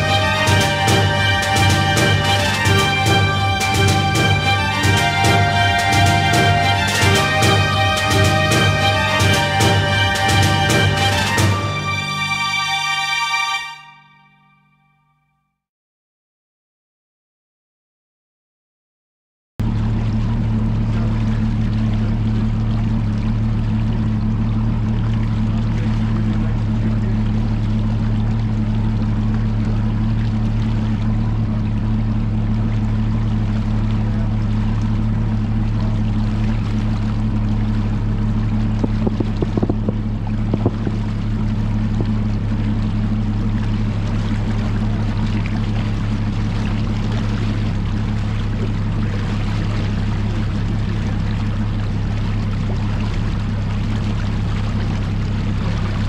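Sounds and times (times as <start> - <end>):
water rushing along hull: 0.0 - 14.2, 19.6 - 56.0
outboard motor humming: 0.0 - 14.6, 19.6 - 56.0
wind: 19.6 - 56.0
short knocks: 38.8 - 41.1.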